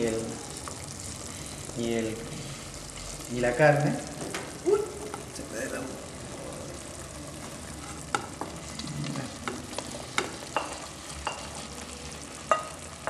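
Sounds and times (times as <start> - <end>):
sizzling in a pot: 0.0 - 13.0
spoon knocking on bowl and pot: 12.5 - 12.8.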